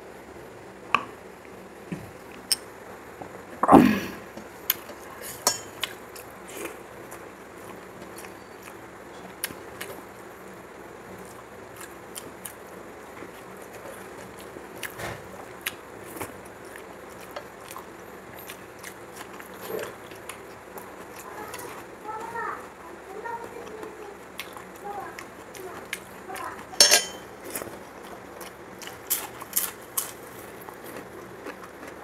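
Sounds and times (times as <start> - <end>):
fingers mixing food on metal plate: 25.2 - 27.7
chewing and mouth smacks: 27.4 - 32.0.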